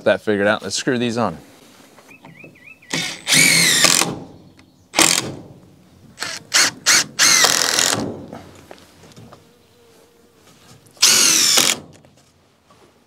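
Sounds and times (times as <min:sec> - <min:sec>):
impact driver driving screws into wood: 0:02.9 - 0:04.3, 0:04.9 - 0:05.6, 0:06.2 - 0:08.3, 0:11.0 - 0:12.0.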